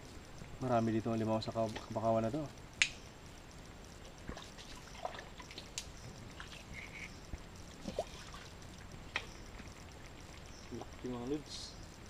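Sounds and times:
trickling and dripping water: 0.0 - 12.0
small clicks and splashes: 3.9 - 11.4.

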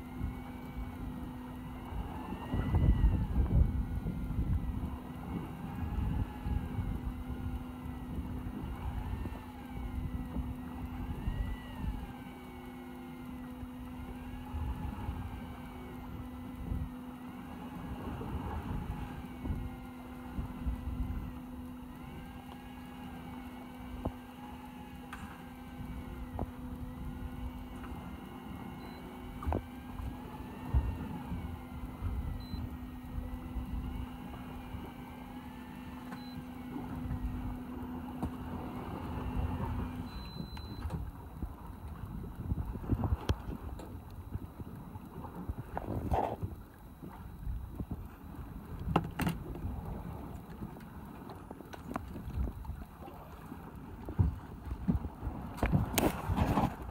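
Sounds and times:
boat engine idling: 0.0 - 56.9
steady motor hum: 0.0 - 56.9
wavering high whine: 0.0 - 56.9
wind on microphone: 0.1 - 12.2, 14.0 - 22.8, 25.7 - 35.6, 36.5 - 50.7.

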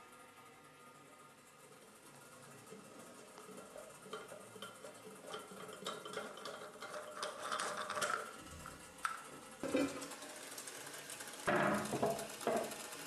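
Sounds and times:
ceramic and plastic clinks: 4.1 - 8.3.

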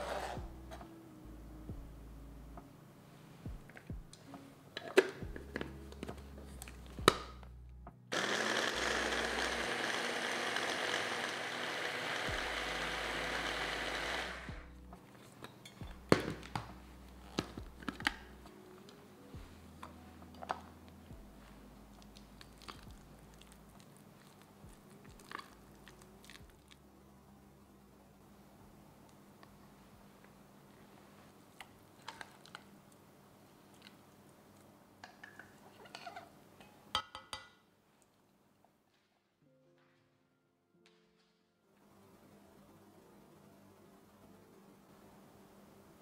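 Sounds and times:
electric chopper motor grinding: 8.1 - 14.6.

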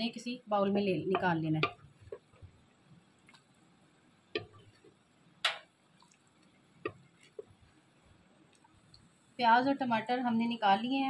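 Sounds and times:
ladle tapping clay pot: 1.1 - 2.5, 4.4 - 5.7, 6.8 - 7.6
small wet squishes: 4.4 - 7.6.

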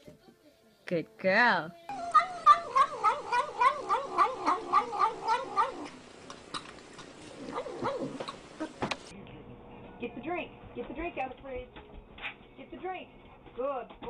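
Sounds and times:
cat calling while eating: 1.9 - 6.7.

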